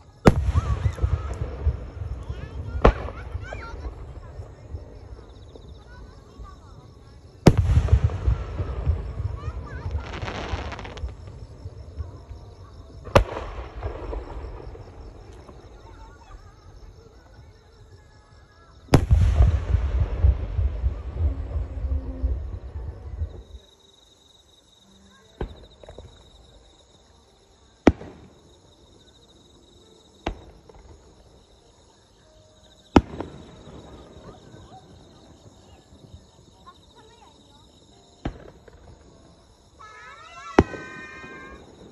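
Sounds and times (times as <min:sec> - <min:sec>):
firework booms with rolling rumble: 0:00.1 - 0:18.2, 0:18.8 - 0:23.8, 0:27.8 - 0:28.7, 0:30.2 - 0:31.6, 0:32.7 - 0:39.8, 0:40.4 - 0:41.9
sharp firework bangs: 0:00.3 - 0:01.8, 0:07.5 - 0:11.2, 0:18.9 - 0:21.0.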